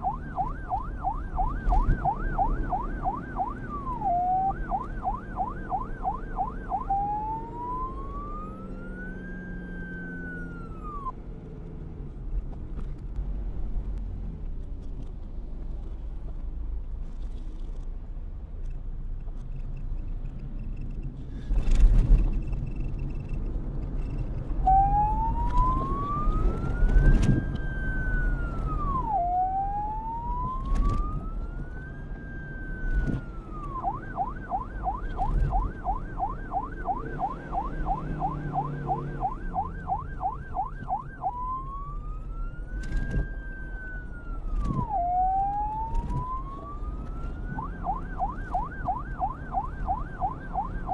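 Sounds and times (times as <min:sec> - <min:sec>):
reversed police siren wailing: 0:00.0 - 0:11.2, 0:24.0 - 0:50.9.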